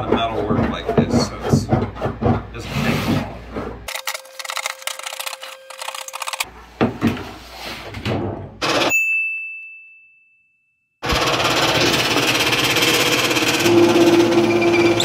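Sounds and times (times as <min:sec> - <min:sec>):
bright ringing ding: 0:08.9 - 0:10.7
machine rattling loudly: 0:11.0 - 0:15.0.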